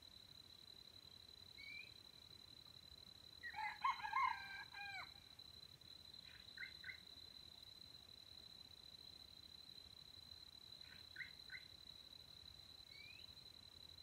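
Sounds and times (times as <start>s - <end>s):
rooster crowing: 3.4s - 5.2s.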